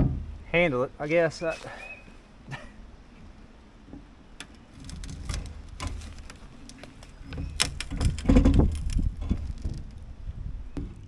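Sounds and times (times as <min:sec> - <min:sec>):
low thumps: 0:00.0 - 0:00.5, 0:03.1 - 0:11.0.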